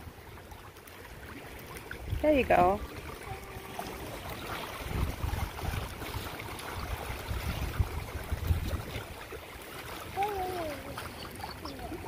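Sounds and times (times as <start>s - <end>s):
waves lapping against rocks: 0.0s - 12.0s
wind gusting on microphone: 4.6s - 9.3s.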